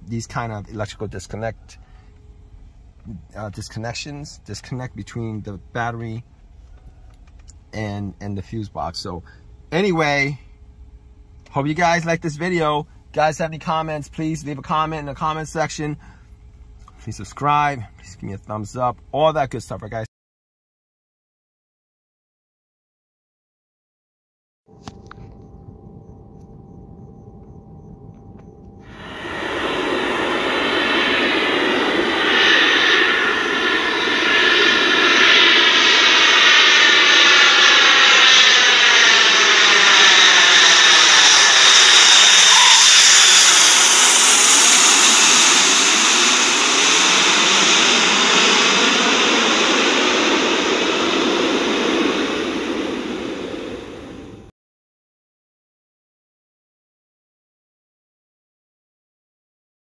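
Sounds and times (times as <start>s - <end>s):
jet aircraft passing overhead: 25.0s - 54.5s.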